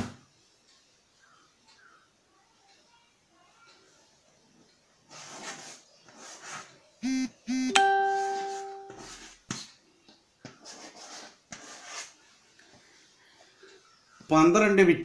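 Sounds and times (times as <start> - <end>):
chalk writing on chalkboard: 5.1 - 6.8, 8.5 - 9.8, 10.4 - 13.2
three-note chime: 7.7 - 9.1.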